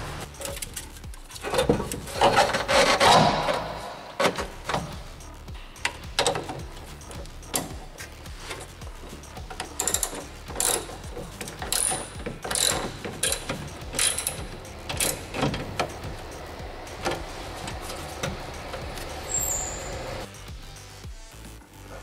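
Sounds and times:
metallic tool clicks and knocks: 8.6s - 18.9s.

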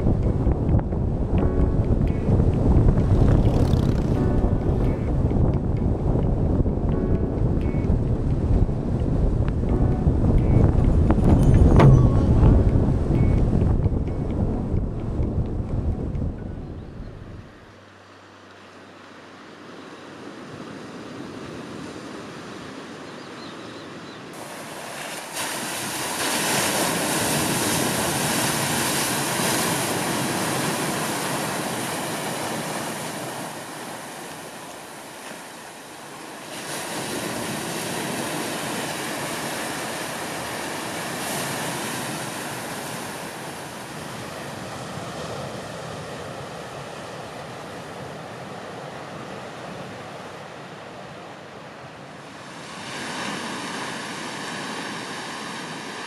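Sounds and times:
surf breaking on rocks: 24.4s - 43.9s.

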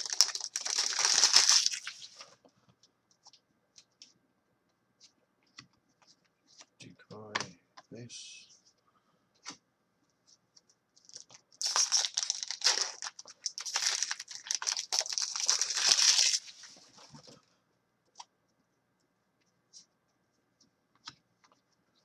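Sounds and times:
foil wrapper tearing and crinkling: 0.0s - 2.2s, 11.1s - 16.7s.

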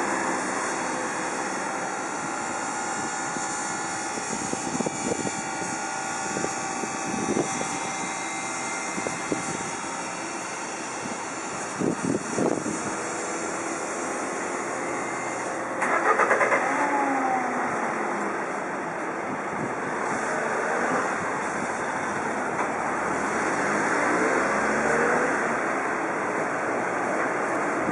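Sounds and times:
road noise hum: 0.0s - 27.9s
truck engine approaching: 0.0s - 27.9s
vehicle engine passing: 22.8s - 26.1s.

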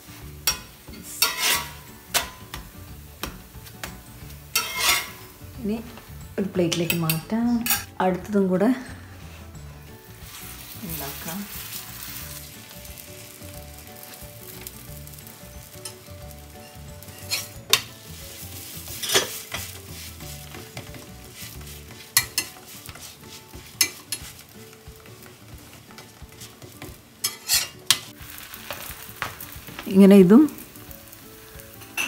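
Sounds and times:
flatbread sizzling on griddle: 0.0s - 6.3s, 9.2s - 32.0s
metal spatula scraping griddle: 0.1s - 2.6s, 4.4s - 5.4s, 15.8s - 29.3s.

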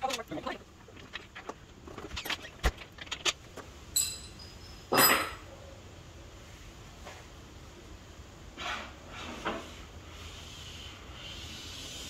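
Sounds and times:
ringing clink: 3.9s - 5.4s.

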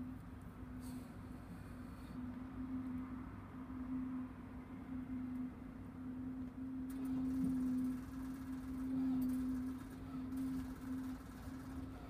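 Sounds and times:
generator engine humming: 6.9s - 12.0s.

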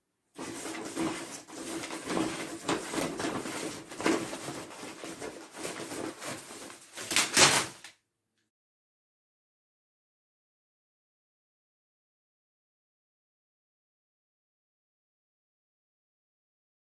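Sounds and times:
papers rustling and crinkling: 0.4s - 7.9s.

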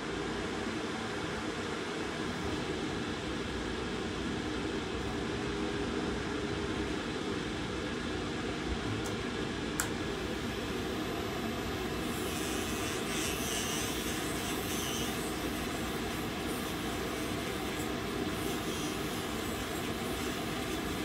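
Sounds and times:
dust collector suction fan: 0.0s - 21.0s
electric nail drill grinding: 10.3s - 21.0s.

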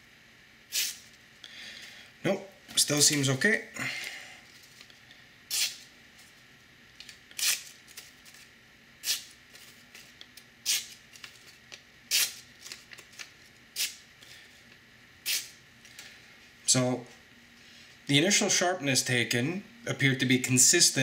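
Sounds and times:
knife slicing paper: 0.7s - 1.0s.

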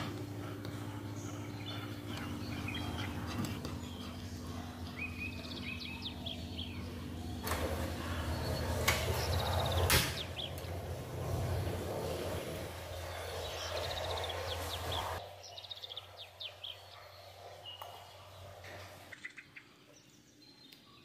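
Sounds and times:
birds chirping: 0.0s - 21.0s
gas stove hissing: 7.3s - 15.2s.

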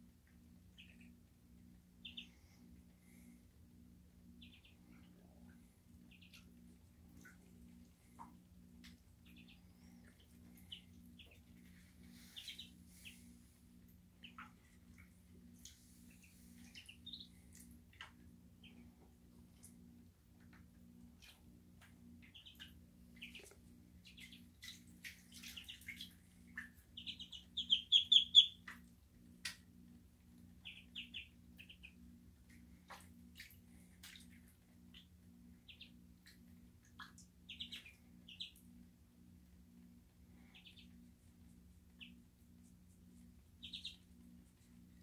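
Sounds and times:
low steady hum: 0.0s - 45.0s
ducklings peeping: 0.5s - 3.5s, 4.2s - 29.6s, 30.4s - 38.9s, 40.3s - 45.0s
light water splashes: 24.2s - 26.8s.

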